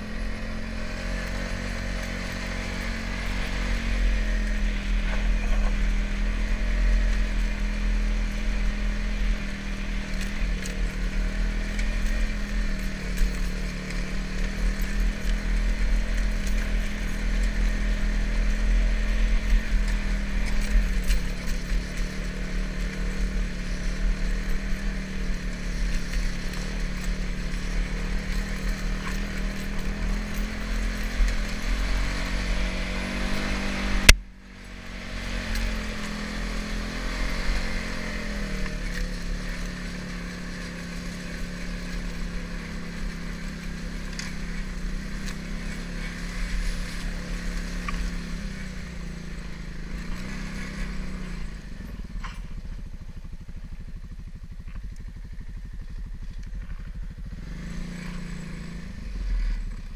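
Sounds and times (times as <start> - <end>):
quad engine revving: 0.0 - 54.0, 54.6 - 59.9.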